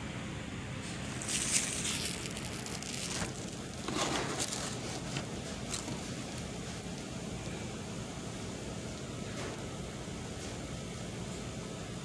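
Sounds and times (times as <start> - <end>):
low background hum: 0.0 - 12.0
paper box rustling: 1.0 - 6.9.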